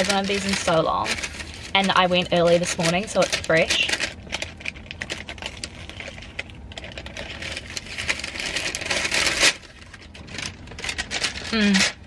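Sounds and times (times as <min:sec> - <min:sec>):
crunching and chewing pastry: 0:00.0 - 0:12.0
paper bag rustling: 0:00.0 - 0:12.0.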